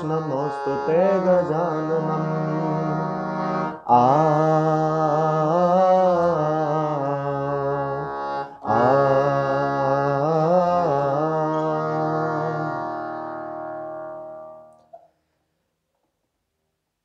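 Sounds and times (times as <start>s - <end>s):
harmonium melody: 0.0s - 14.8s.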